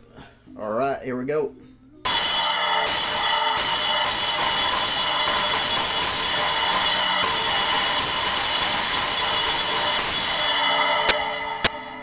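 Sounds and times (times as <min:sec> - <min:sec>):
splash cymbal struck with drumstick: 0:02.1 - 0:12.0.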